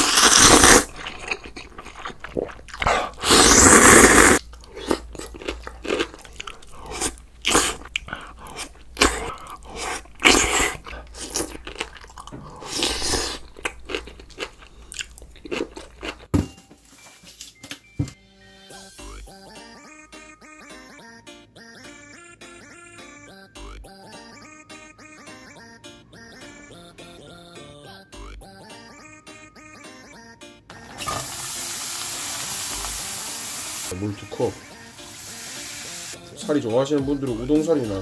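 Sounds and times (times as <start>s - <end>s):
person crunching crisp food: 0.0s - 16.3s.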